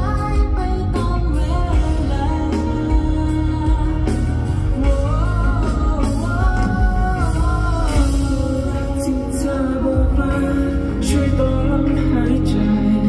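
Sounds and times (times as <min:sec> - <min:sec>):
heavy bass from speakers: 0:00.0 - 0:13.0
men singing: 0:04.8 - 0:13.0.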